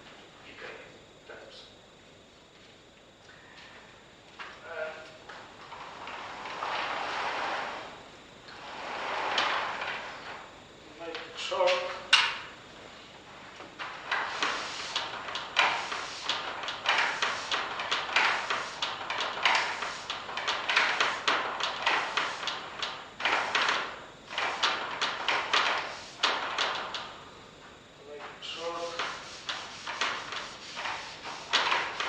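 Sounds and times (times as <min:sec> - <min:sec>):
eraser rubbing chalkboard: 0:14.1 - 0:22.6, 0:24.3 - 0:26.4, 0:28.6 - 0:32.0.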